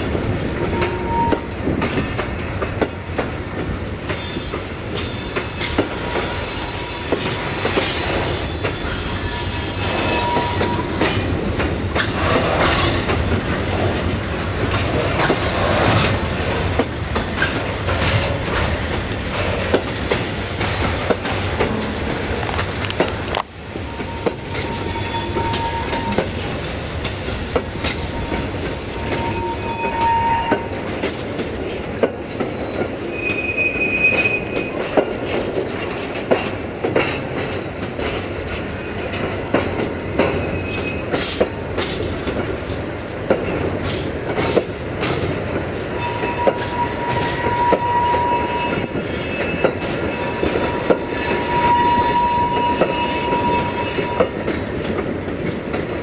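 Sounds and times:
clacks over rail joints: 0:00.0 - 0:06.3, 0:10.6 - 0:29.4, 0:30.5 - 0:33.2, 0:34.0 - 0:51.1
train wheels rumbling: 0:00.0 - 0:56.0
high wheel squeal: 0:00.6 - 0:01.6, 0:04.0 - 0:11.2, 0:23.8 - 0:30.8, 0:32.6 - 0:35.0, 0:40.2 - 0:41.4, 0:45.8 - 0:56.0.

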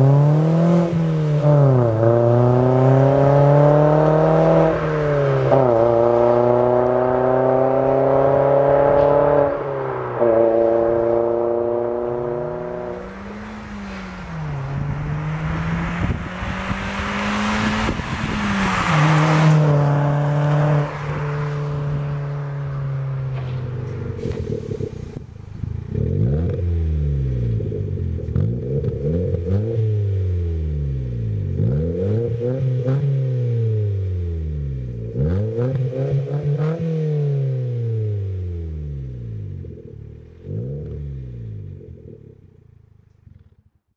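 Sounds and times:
car driving past: 0:00.0 - 0:27.6
car engine revving: 0:00.0 - 0:43.5.

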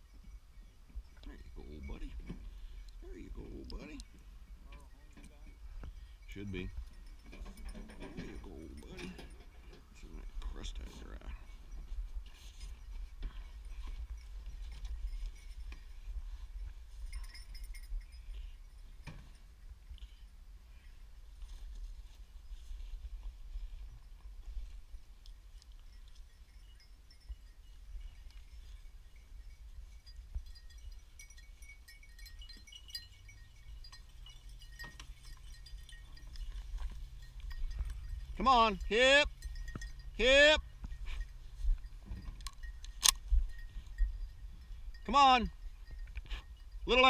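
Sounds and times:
light metallic clinks: 0:00.0 - 0:21.2, 0:22.4 - 0:47.0
wind rumble on microphone: 0:00.0 - 0:46.9
dog collars jingling: 0:16.9 - 0:18.8, 0:25.5 - 0:47.0.

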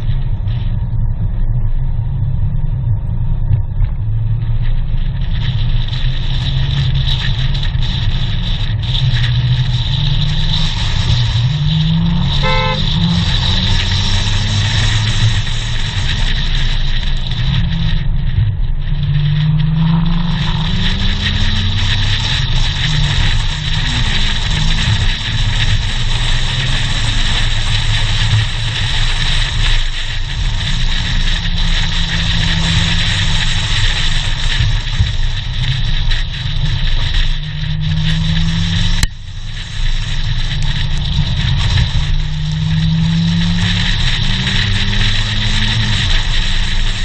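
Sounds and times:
sports car engine accelerating: 0:00.0 - 0:47.0
wind and road noise: 0:00.0 - 0:47.0
car horn toot: 0:12.3 - 0:13.4.

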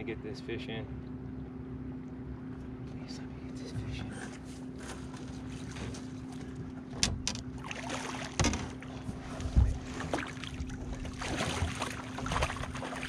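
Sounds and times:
steady low hum: 0:00.0 - 0:13.0
rustling water: 0:04.5 - 0:13.0
knocks and bumps on boat: 0:05.7 - 0:13.0.

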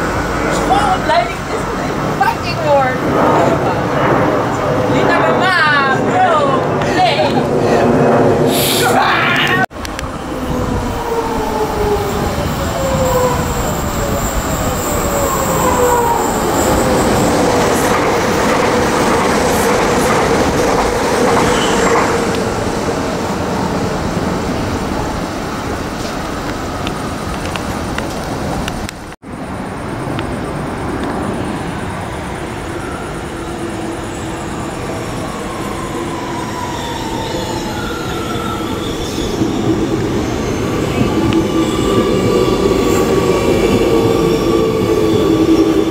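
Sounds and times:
train wheels on rails: 0:09.5 - 0:45.9
wheel squeal: 0:21.3 - 0:22.1.

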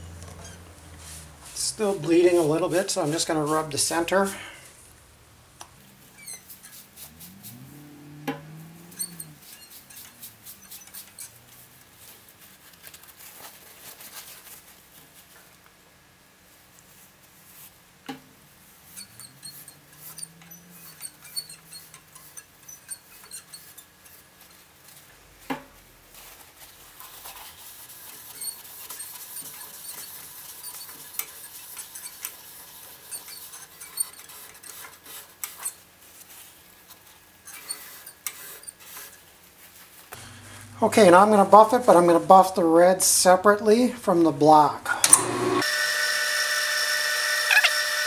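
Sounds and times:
paper towel rubbing wood: 0:00.4 - 0:04.5, 0:08.9 - 0:15.3, 0:26.1 - 0:40.0.

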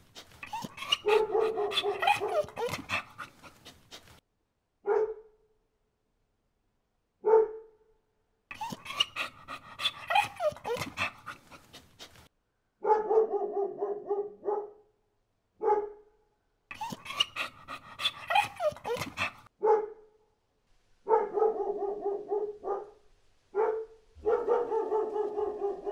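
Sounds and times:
dog barking: 0:00.5 - 0:03.5, 0:04.8 - 0:05.4, 0:07.2 - 0:07.8, 0:08.6 - 0:11.6, 0:12.8 - 0:14.9, 0:15.6 - 0:16.1, 0:16.8 - 0:20.2, 0:21.0 - 0:25.9.

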